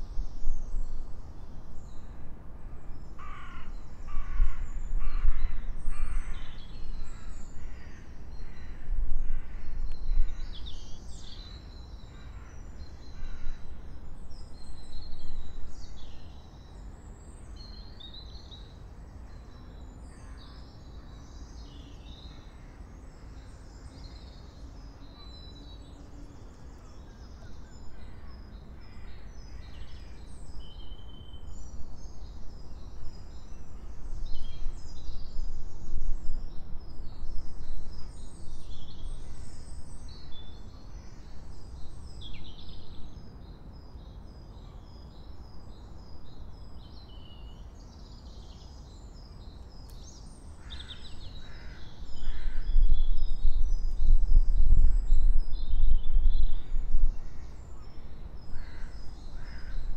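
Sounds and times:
gusty wind rumbling: 50.8 - 59.9.

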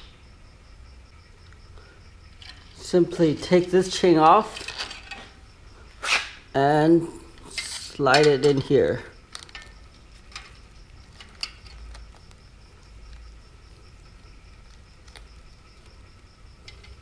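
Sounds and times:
bike chain clicking: 9.2 - 12.4, 16.6 - 17.0.

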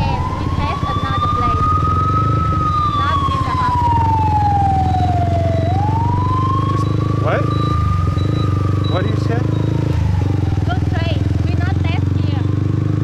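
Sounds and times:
emergency siren wailing: 0.0 - 13.0
motorbike engine rumble: 0.0 - 13.0
road noise: 0.0 - 13.0.

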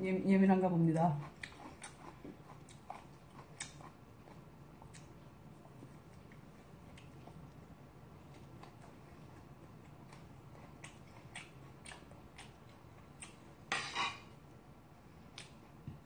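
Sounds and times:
close chewing: 1.1 - 13.6.

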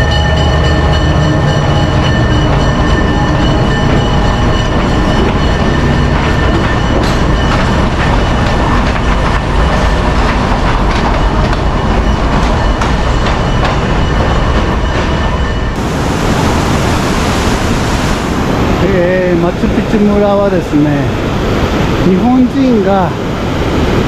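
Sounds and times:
wheels clicking over rail joints: 0.0 - 15.6
train rumbling past: 0.0 - 24.0
thin high whine: 11.5 - 23.9.

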